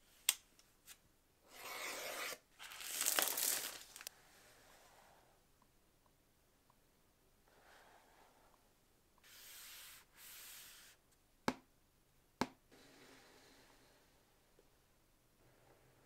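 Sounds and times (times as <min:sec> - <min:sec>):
packaging rubbing: 0:02.2 - 0:04.1.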